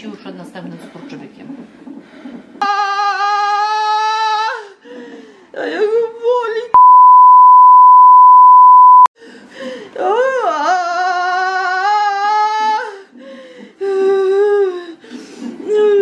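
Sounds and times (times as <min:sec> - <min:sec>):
censor beep tone: 0:06.8 - 0:09.1.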